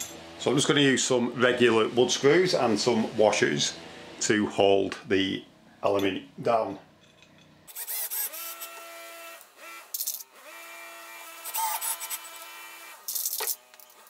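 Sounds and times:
drill motor whine: 0:07.7 - 0:14.0.

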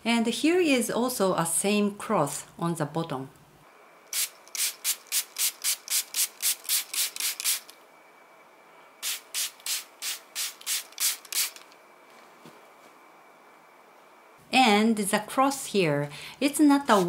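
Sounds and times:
spray bottle misting: 0:04.1 - 0:07.7, 0:09.0 - 0:11.7.

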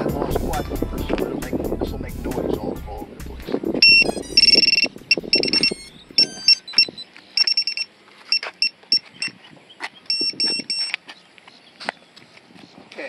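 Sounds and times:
scattered clicks: 0:03.8 - 0:09.1
electronic beeper beeping: 0:03.8 - 0:09.4, 0:10.1 - 0:10.9
stepped electronic tones: 0:03.8 - 0:09.4, 0:10.1 - 0:11.0.

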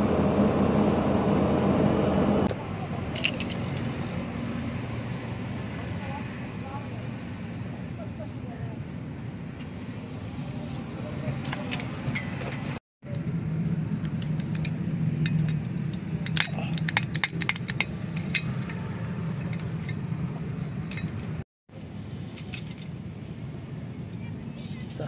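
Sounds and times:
steel parts clinking: 0:03.0 - 0:04.0, 0:11.4 - 0:12.8, 0:13.6 - 0:20.0, 0:20.8 - 0:21.4, 0:22.3 - 0:23.0.

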